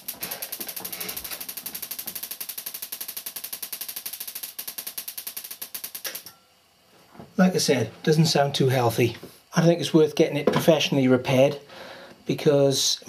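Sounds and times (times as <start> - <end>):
television crackling ticks: 0.0 - 6.3.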